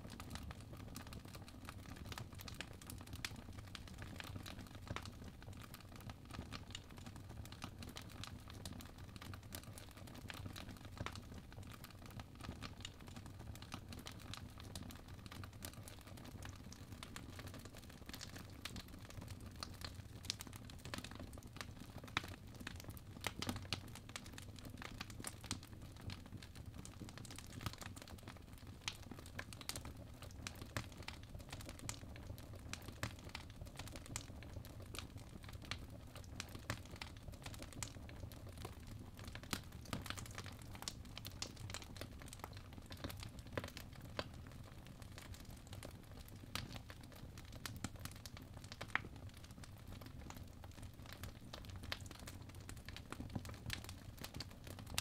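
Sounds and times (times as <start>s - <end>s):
fire crackling: 26.8s - 44.4s.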